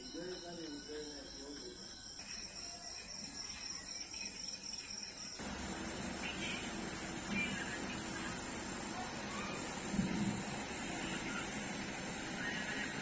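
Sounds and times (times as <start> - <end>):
crickets chirping: 0.0 - 13.0
steady hiss: 5.4 - 13.0.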